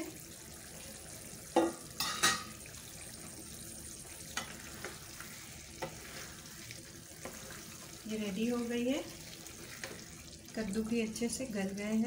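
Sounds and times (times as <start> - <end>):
curry sizzling in a pan: 0.0 - 12.0
spatula stirring thick curry: 4.3 - 10.8.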